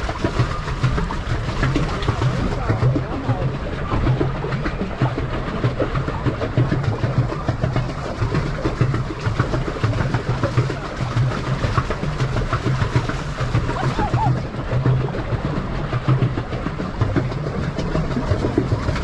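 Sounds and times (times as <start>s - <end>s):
low water churning: 0.0s - 19.0s
water splashing against hull: 0.0s - 19.0s.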